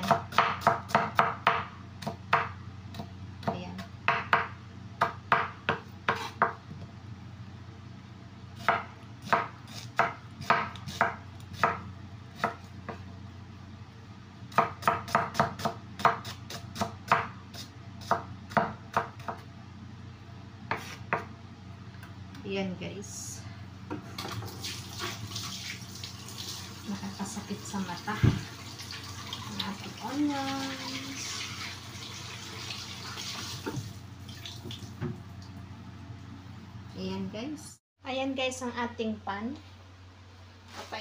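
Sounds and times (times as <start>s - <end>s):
knife chopping on wooden board: 0.0s - 6.6s, 8.6s - 11.8s, 12.4s - 13.0s, 14.5s - 19.4s, 20.7s - 21.3s.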